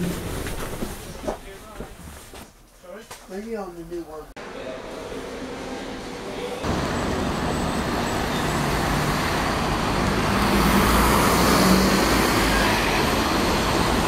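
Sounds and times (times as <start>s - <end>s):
street traffic: 4.4s - 14.0s
coach engine passing: 4.5s - 14.0s.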